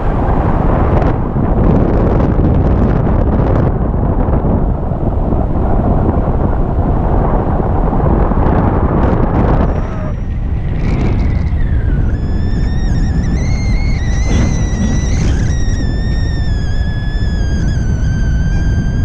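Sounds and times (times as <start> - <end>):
wind rumble on microphone: 0.0 - 19.0
steady high tone: 12.2 - 17.0.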